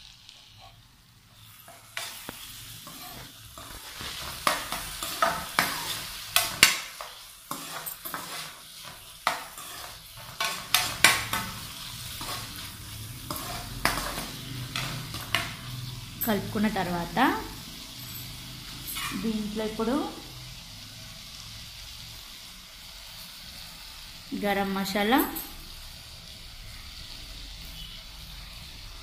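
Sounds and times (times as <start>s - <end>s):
food sizzling in oil: 0.0s - 29.0s
spoon scraping and clinking on pan: 1.6s - 15.8s, 18.2s - 19.3s.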